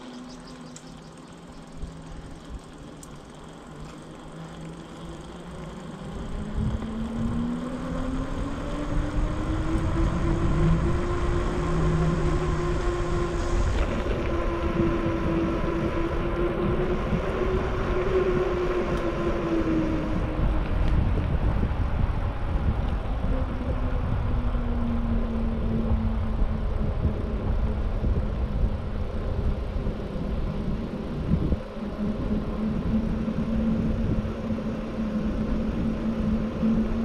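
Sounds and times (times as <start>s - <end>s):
bicycle road noise and hum: 0.0s - 37.0s
wind noise: 5.9s - 37.0s.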